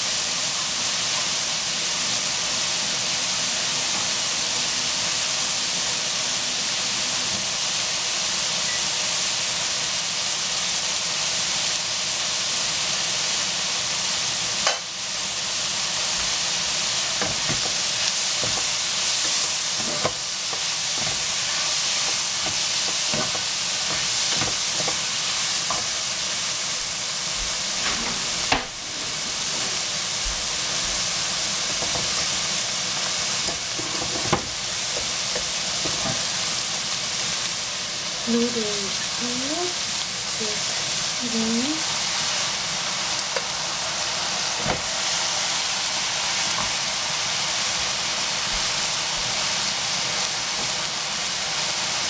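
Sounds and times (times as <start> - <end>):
vegetables sizzling in a wok: 0.0 - 52.0
wooden spatula scraping a pan: 17.2 - 26.0, 27.5 - 32.5.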